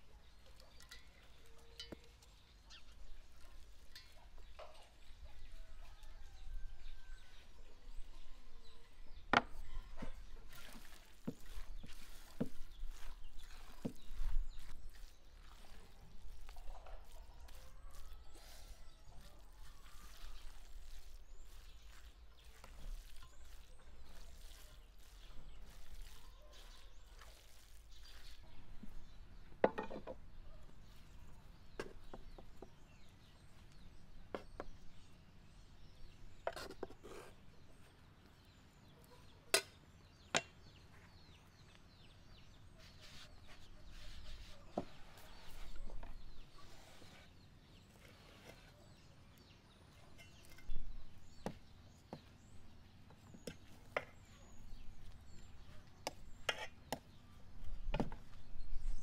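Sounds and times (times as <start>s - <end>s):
spoon stirring in enamel bowl: 0.2s - 5.2s, 9.3s - 29.1s, 53.2s - 57.2s.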